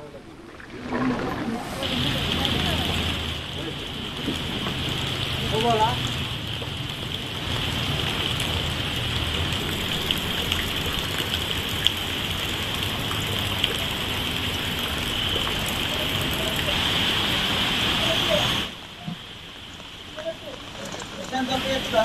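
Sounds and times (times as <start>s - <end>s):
heavy rain falling: 0.0s - 22.0s
sharp ticks of raindrops: 1.8s - 16.9s, 18.0s - 22.0s.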